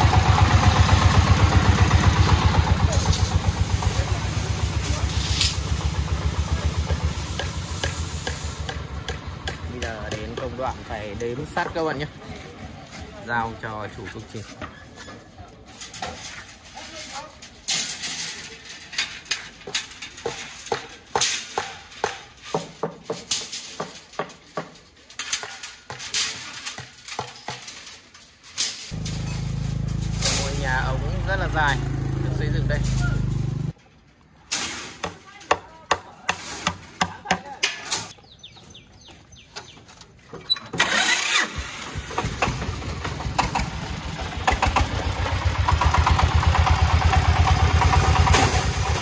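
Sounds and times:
diesel engine chugging: 0.0 - 12.8, 29.0 - 33.7, 40.8 - 49.0
steel bars scraping on concrete: 2.7 - 5.9, 13.7 - 38.2.

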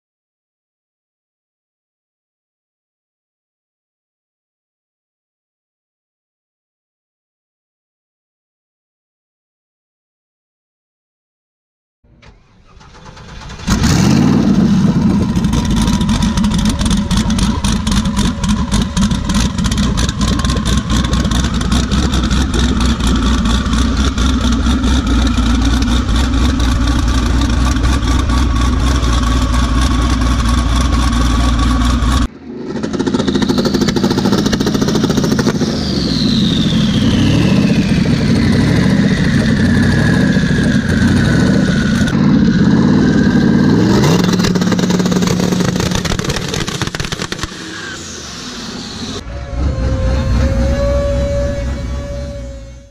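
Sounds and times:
turbocharged truck engine running: 12.1 - 52.9
high whistle gliding down: 33.0 - 42.1, 47.4 - 52.9.

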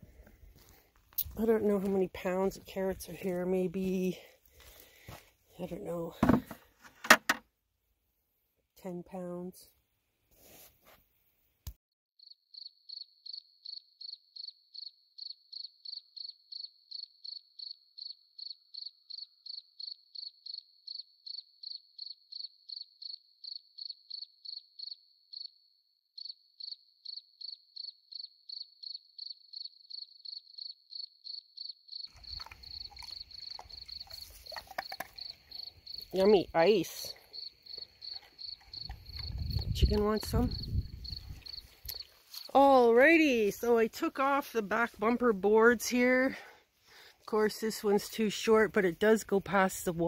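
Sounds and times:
outdoor background noise: 0.0 - 11.7, 26.2 - 50.0
cricket chirping: 12.2 - 42.6.

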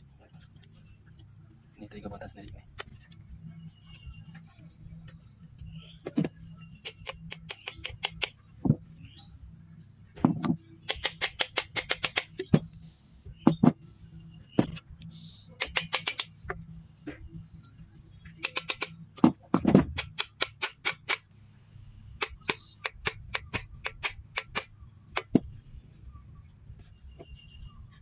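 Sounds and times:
hand tools tapping and clicking: 6.0 - 8.8, 10.2 - 12.7, 15.6 - 17.2, 18.3 - 21.2, 22.2 - 25.5.

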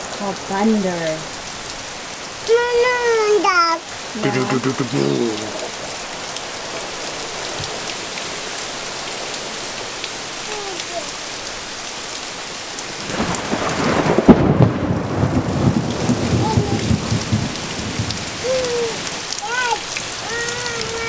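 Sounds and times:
steady rain falling: 0.0 - 21.0
thunder crack and rumble: 13.0 - 18.3.

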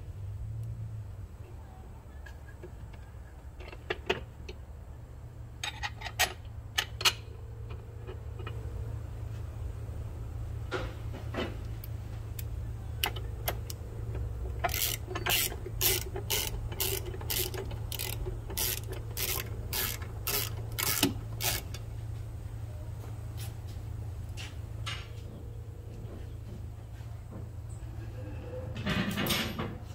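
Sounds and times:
steady low hum: 0.0 - 29.7
loose metal clicks: 10.7 - 21.9
ratchet wrench ratcheting: 12.4 - 21.8.

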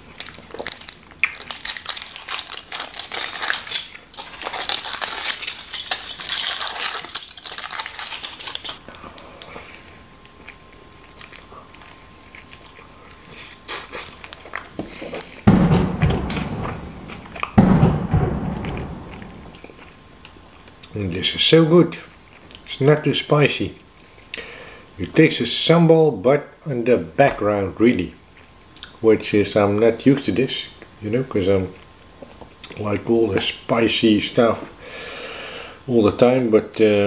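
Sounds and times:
foil crinkling and tearing: 0.0 - 8.8
person chewing: 4.4 - 15.4
loud dull thumps: 15.5 - 19.7.

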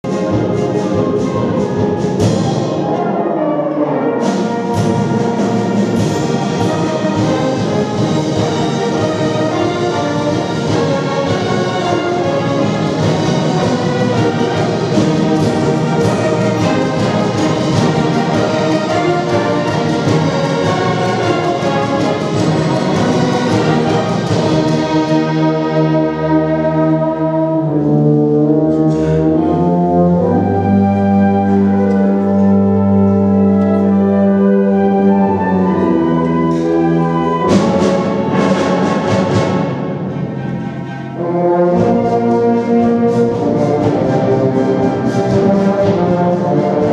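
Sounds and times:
wind band playing: 0.0 - 46.9.

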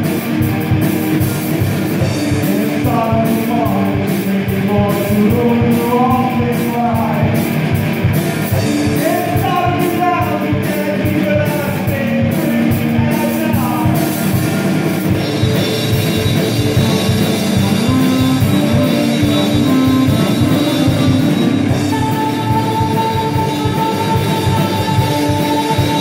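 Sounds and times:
drum kit steady beat: 0.0 - 26.0
electric guitar: 0.0 - 26.0
keyboard: 0.0 - 26.0
saxophone long held notes: 15.2 - 26.0.

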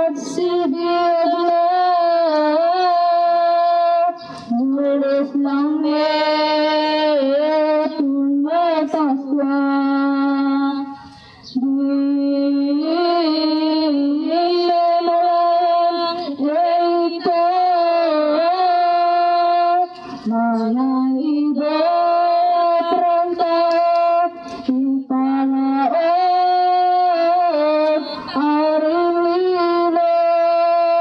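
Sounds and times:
woman chanting: 0.0 - 31.0.

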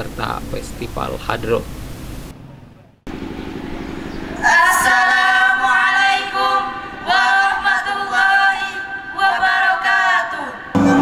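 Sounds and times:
people singing into microphones: 4.4 - 11.0.

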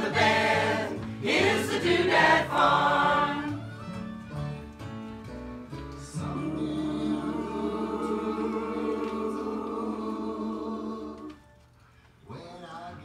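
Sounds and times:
group of people singing: 0.0 - 3.6, 6.1 - 11.5.

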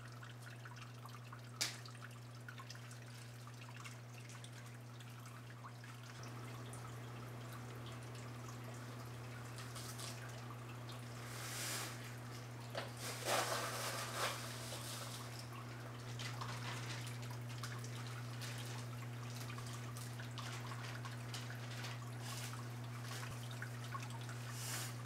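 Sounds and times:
water dripping and trickling: 0.0 - 25.0.

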